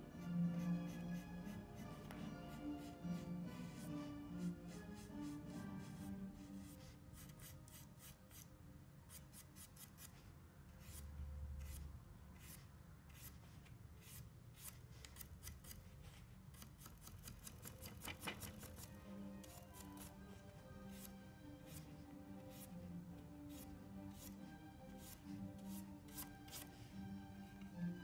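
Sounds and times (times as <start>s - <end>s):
paintbrush tapping and scraping: 0.5s - 8.4s.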